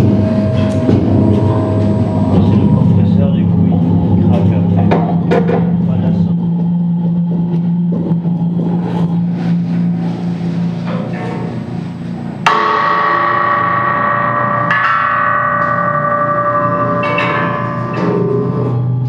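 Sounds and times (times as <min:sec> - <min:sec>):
struck metal bell ringing: 0:00.0 - 0:05.9, 0:12.5 - 0:19.0
low hum: 0:00.0 - 0:19.0.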